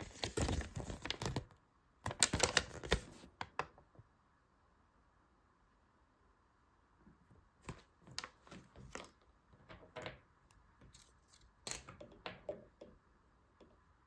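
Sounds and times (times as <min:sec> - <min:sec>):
paper rustling and crinkling: 0:00.0 - 0:01.5, 0:02.1 - 0:03.4.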